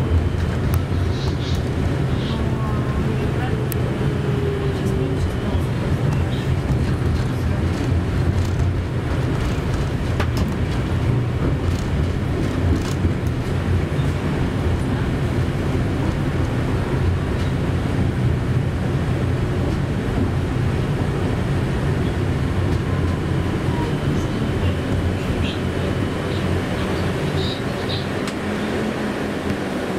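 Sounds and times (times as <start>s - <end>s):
tram running along track: 0.0s - 29.9s.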